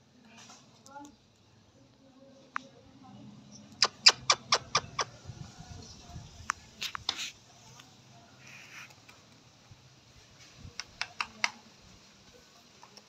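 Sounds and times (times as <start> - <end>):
sharp clicks: 10.8 - 11.6.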